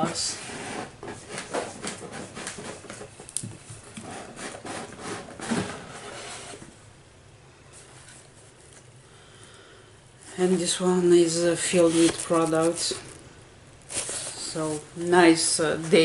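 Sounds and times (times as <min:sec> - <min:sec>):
cardboard drawer sliding out: 0:04.1 - 0:06.6.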